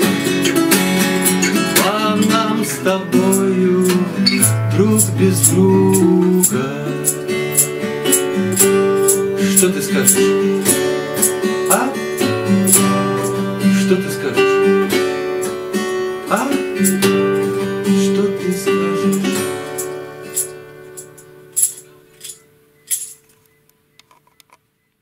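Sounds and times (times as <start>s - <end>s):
acoustic guitars strumming: 0.0s - 23.4s
hand percussion shakes: 3.2s - 13.6s, 16.4s - 17.3s, 18.0s - 23.3s.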